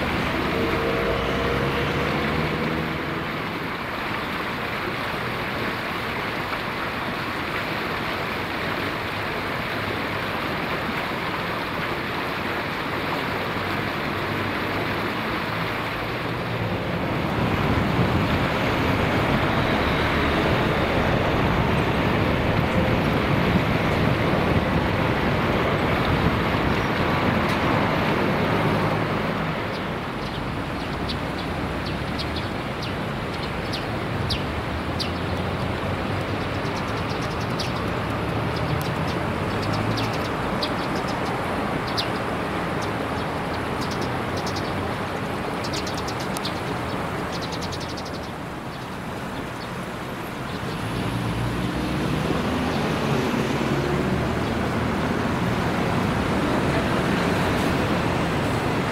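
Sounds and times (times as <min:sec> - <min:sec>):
road traffic hum: 0:00.0 - 0:58.9
small birds chirping: 0:29.6 - 0:51.7.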